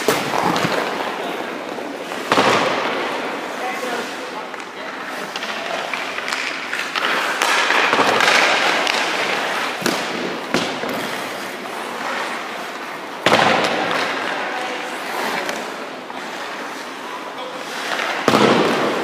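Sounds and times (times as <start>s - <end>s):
skate blades scraping ice: 0.0s - 19.0s
stick hitting puck: 2.2s - 12.5s, 17.6s - 19.0s.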